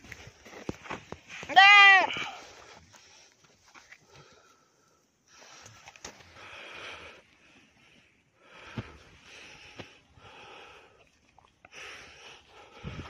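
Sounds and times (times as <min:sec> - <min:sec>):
goat crying hoarsely: 0:01.5 - 0:02.4.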